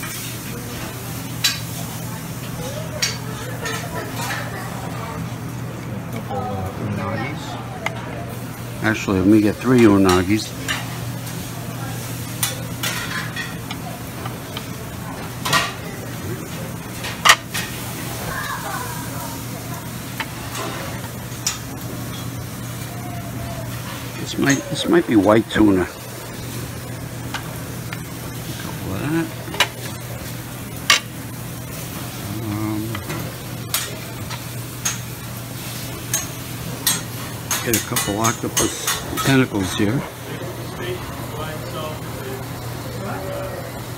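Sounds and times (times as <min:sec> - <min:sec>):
restaurant din: 0:00.0 - 0:43.9
tongs clattering against plate: 0:01.4 - 0:01.8, 0:03.0 - 0:04.6, 0:09.6 - 0:15.8, 0:16.8 - 0:17.8, 0:20.1 - 0:22.4, 0:23.7 - 0:25.9, 0:30.8 - 0:31.1, 0:32.9 - 0:35.2, 0:36.0 - 0:39.8.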